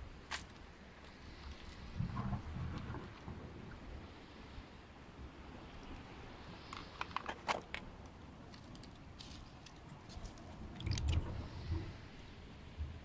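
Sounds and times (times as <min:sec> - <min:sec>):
low muffled rumble: 0:01.8 - 0:04.2.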